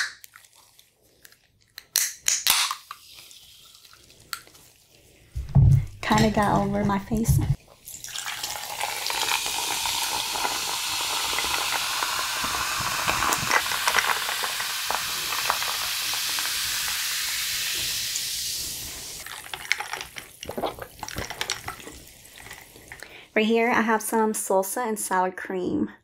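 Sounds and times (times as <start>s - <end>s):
sparkling water fizzing: 2.8s - 5.3s, 7.8s - 23.2s
water pouring into a mug: 7.8s - 23.0s.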